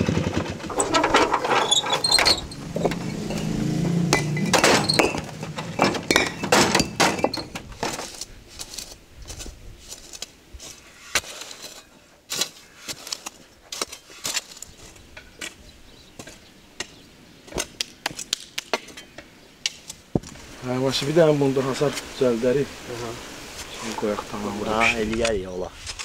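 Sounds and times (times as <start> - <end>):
shovel scraping dry dirt: 0.0 - 6.2, 6.8 - 15.6, 25.7 - 26.0
stone blocks knocking and scraping: 0.6 - 8.2.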